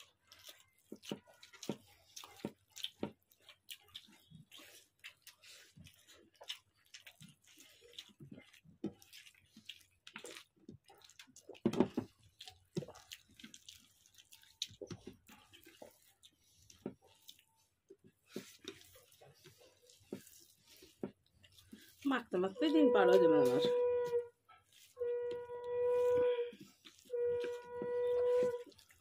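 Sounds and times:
fingers mashing rice on plates: 0.0 - 29.0
people chewing and squelching: 0.0 - 29.0.

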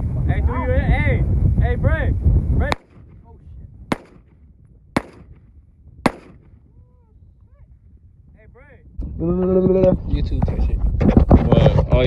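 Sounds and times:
wind buffeting microphone: 0.0 - 12.0
rifle shots: 2.7 - 3.2, 3.9 - 4.4, 5.0 - 6.6.

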